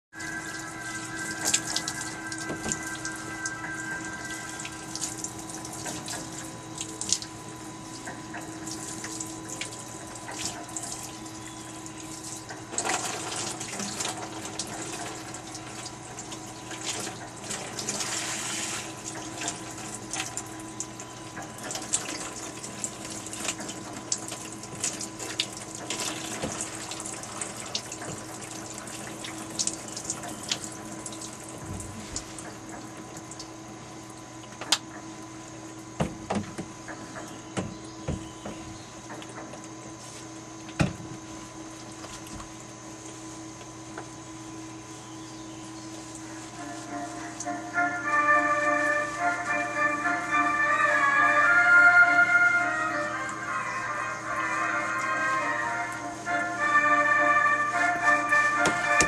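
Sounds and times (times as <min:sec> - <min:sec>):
low hum: 0:00.1 - 0:24.5
water running from tap: 0:00.1 - 0:34.6, 0:46.0 - 0:48.1.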